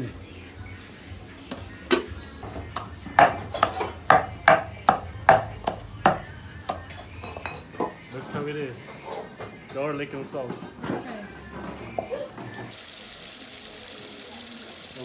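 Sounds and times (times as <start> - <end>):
wooden pestle pounding in mortar: 2.8 - 6.8.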